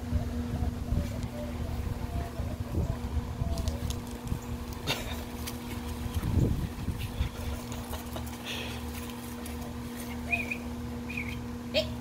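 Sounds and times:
steady low hum: 0.0s - 12.0s
puppies scuffling: 3.5s - 10.6s.

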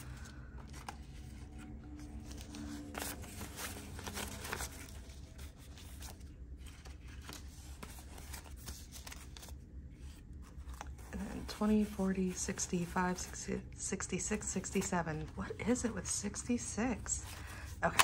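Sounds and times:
banknotes being counted: 11.1s - 18.0s.

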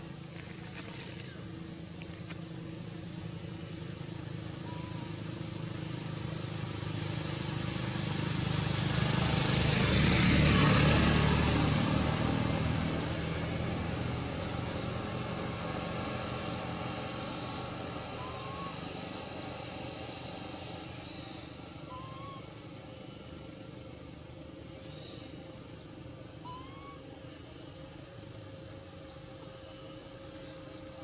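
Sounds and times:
vehicle engine hum: 0.0s - 31.0s.

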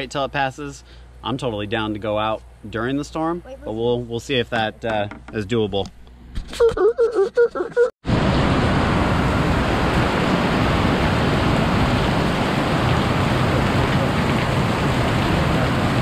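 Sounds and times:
heavy rain pouring: 8.1s - 16.0s.

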